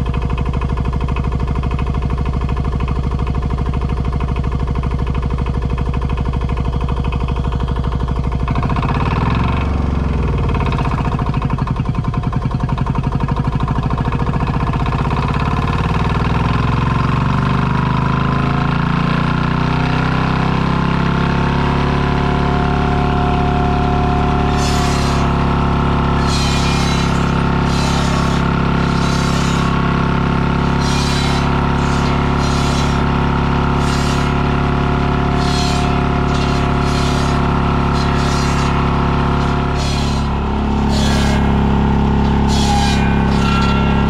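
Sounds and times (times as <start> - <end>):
diesel engine running under load: 0.0 - 44.0
firewood saw: 22.2 - 44.0.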